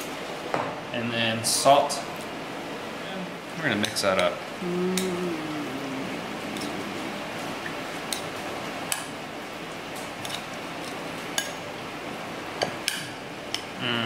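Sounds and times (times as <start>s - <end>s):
fork stirring salad: 6.5s - 6.8s.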